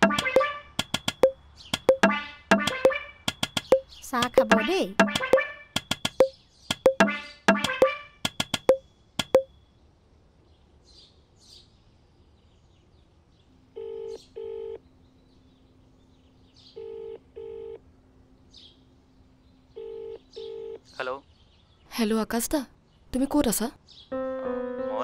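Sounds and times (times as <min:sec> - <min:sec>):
sharp clicks: 0:00.0 - 0:09.5
faint steady hum: 0:13.5 - 0:23.5
phone ringback tone: 0:16.8 - 0:17.8, 0:19.8 - 0:20.8.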